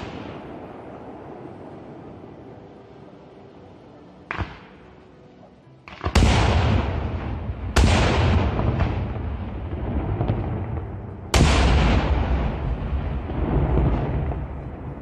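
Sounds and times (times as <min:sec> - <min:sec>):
rumbling tail of booms: 0:06.2 - 0:15.0.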